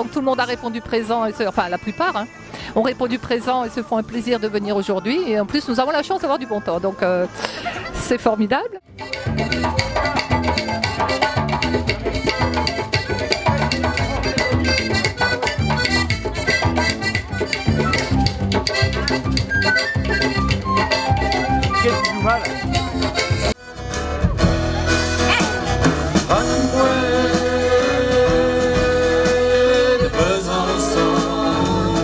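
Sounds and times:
live band playing dance music: 8.9 - 32.0.

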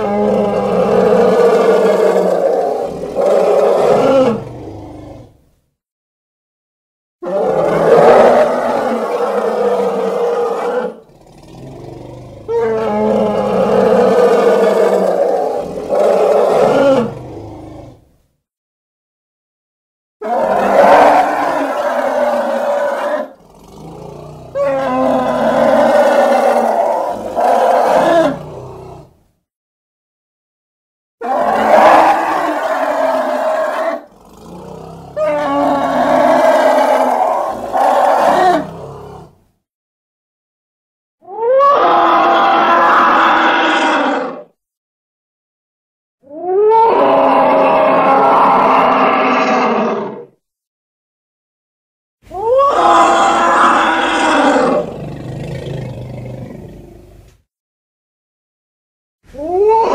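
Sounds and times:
elephant roaring: 0.0 - 5.4, 7.2 - 18.0, 20.2 - 29.2, 31.2 - 39.4, 41.3 - 44.6, 46.3 - 50.4, 52.3 - 57.2.

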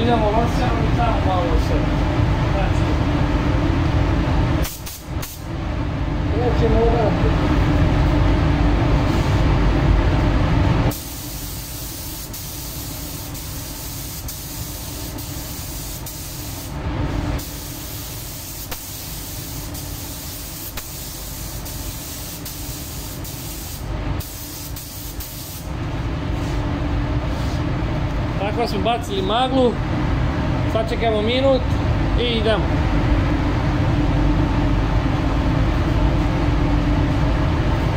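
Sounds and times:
spray gun hissing: 10.9 - 16.8, 17.4 - 25.7.

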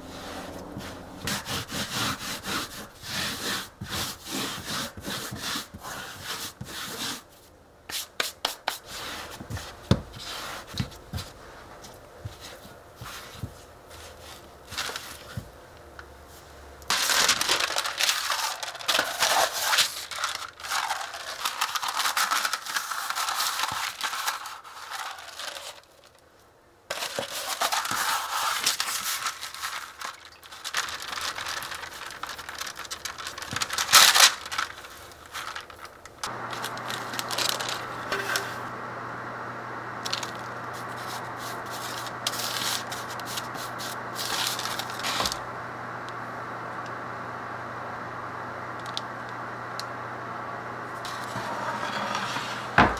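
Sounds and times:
low hum: 0.0 - 1.5, 36.3 - 43.2
hands kneading dough: 0.0 - 15.6
baking paper crinkling: 0.1 - 15.5, 16.3 - 26.2, 26.9 - 38.7, 40.0 - 45.4, 51.0 - 52.9.

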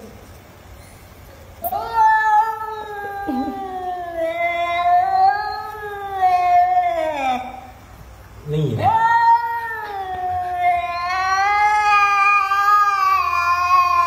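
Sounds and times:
cat yowling: 1.6 - 7.7, 8.8 - 14.0.

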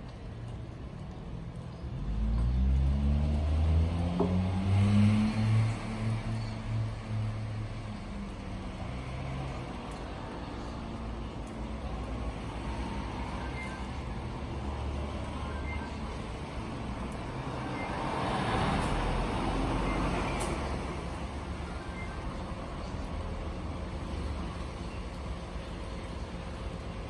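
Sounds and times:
road traffic rumble: 0.0 - 27.0
vehicle passing: 2.0 - 9.8.

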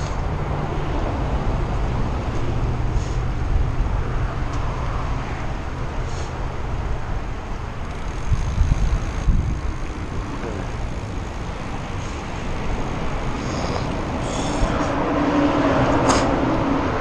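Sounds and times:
tyres rolling on asphalt: 0.0 - 17.0
wind rumble on microphone: 0.0 - 17.0.

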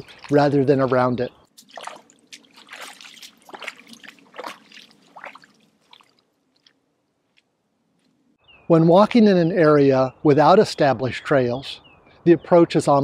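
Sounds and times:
boots splashing through mud: 0.0 - 6.9.

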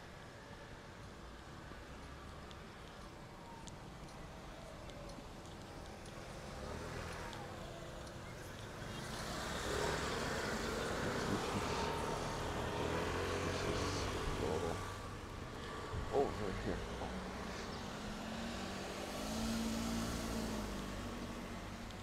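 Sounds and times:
car driving past: 8.8 - 22.0.

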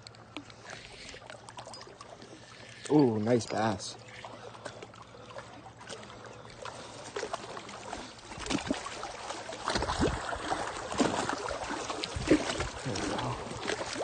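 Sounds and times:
fish splashing at water surface: 3.9 - 14.0.

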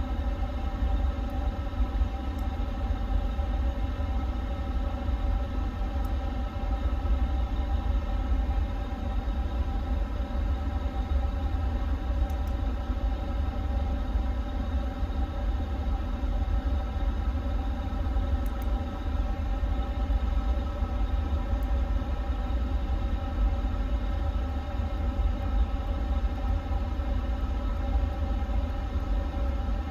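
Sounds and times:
many-toned hum: 0.0 - 29.9
faint clicks: 18.4 - 18.8.

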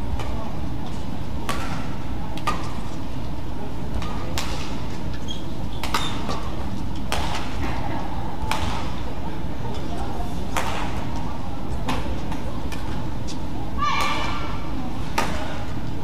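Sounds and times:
low background noise: 0.0 - 16.0
racket hitting shuttlecock: 1.4 - 2.8, 4.0 - 4.8, 5.8 - 7.8, 8.4 - 9.0, 10.5 - 11.0.

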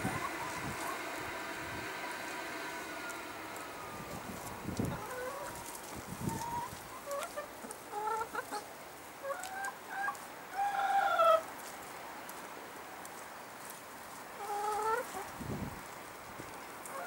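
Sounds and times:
hens clucking: 0.0 - 11.5, 14.4 - 15.4.

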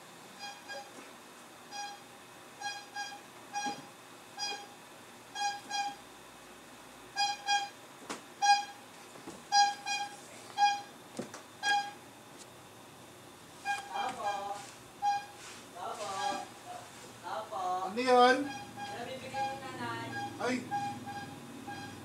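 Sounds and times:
horn tooting: 16.0 - 16.6, 18.1 - 22.0.

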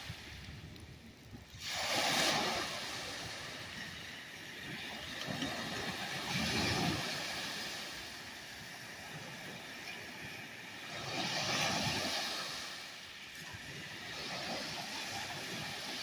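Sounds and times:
waves lapping on sand beach: 0.0 - 16.0.

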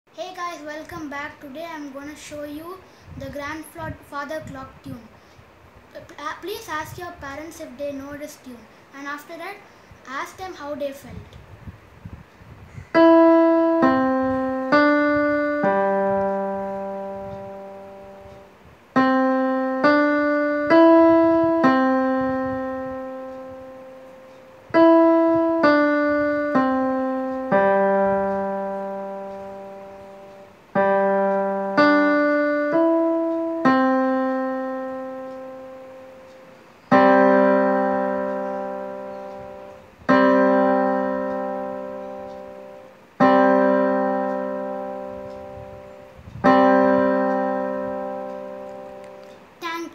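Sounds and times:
slow piano chord strikes: 12.9 - 49.4
electronic piano chime melody: 13.0 - 49.4.

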